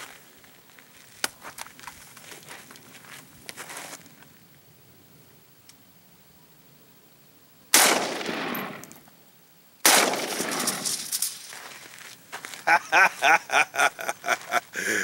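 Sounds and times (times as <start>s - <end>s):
rifle shots echoing: 7.7s - 9.0s, 9.8s - 11.1s
man laughing: 12.6s - 15.0s.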